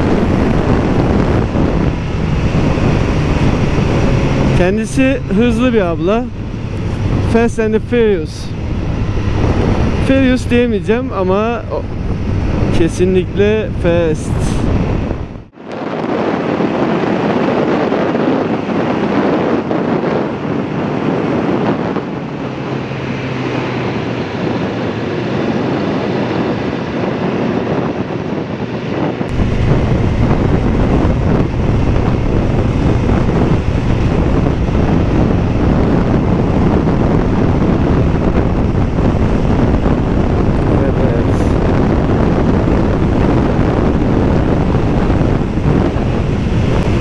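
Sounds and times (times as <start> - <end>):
motorcycle engine: 0.0 - 15.5, 28.5 - 47.0
wind buffeting microphone: 0.0 - 47.0.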